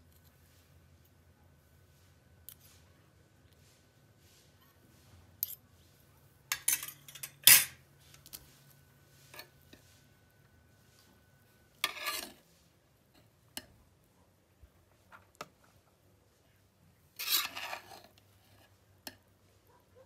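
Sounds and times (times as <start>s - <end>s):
spoon scraping metal: 6.5s - 8.3s, 11.7s - 12.5s, 17.1s - 19.2s.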